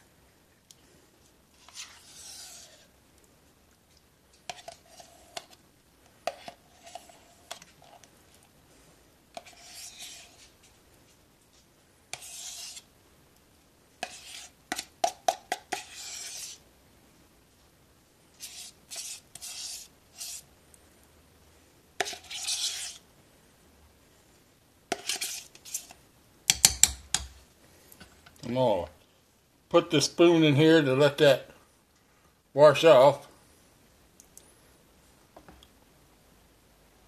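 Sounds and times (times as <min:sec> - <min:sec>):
spoon scraping plastic tub: 0:01.5 - 0:02.9, 0:04.4 - 0:05.6, 0:06.2 - 0:08.1, 0:09.3 - 0:10.7, 0:12.1 - 0:12.9, 0:14.0 - 0:16.6, 0:18.4 - 0:20.5, 0:22.0 - 0:23.0, 0:24.9 - 0:26.0.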